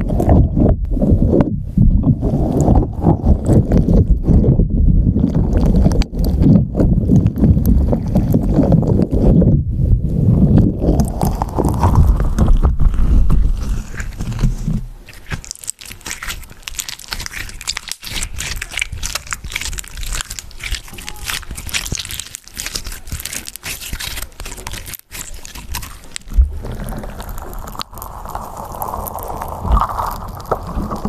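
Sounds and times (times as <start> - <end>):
slime crackling and popping: 0.0 - 9.5, 10.3 - 31.0
muffled rumble on microphone: 0.0 - 15.1, 26.2 - 31.0.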